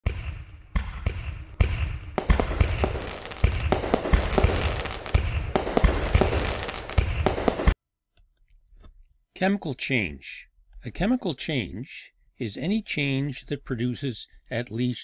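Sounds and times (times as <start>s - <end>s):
fireworks bangs and booms: 0.0s - 7.8s
fireworks crackling: 2.1s - 7.8s.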